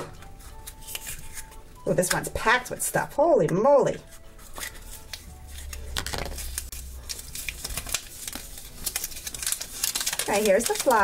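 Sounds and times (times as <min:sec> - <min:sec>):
small plastic pieces rattling: 0:08.8 - 0:11.0.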